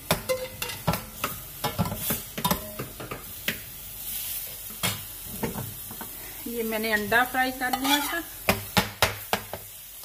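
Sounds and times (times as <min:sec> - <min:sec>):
soft sizzle: 0:00.0 - 0:10.0
metal spoon scraping a steel pan: 0:07.6 - 0:08.3.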